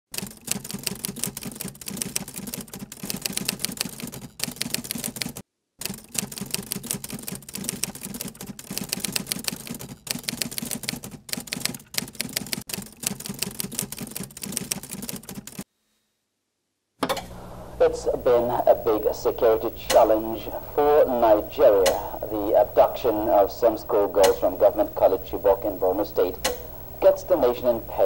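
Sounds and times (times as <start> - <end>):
typewriter keystroke clicks: 21.4 - 22.4, 24.2 - 25.4, 26.2 - 27.9.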